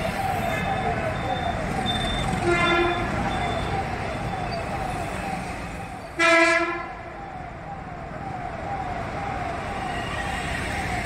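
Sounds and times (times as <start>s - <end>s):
traffic noise: 0.0s - 11.0s
loud horn blast: 2.4s - 3.1s, 6.2s - 6.9s.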